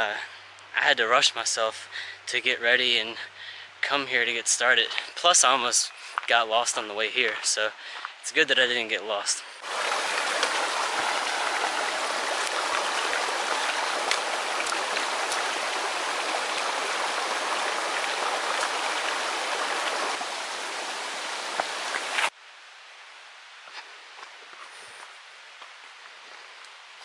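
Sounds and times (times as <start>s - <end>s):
creek babbling over stones: 9.6s - 22.4s.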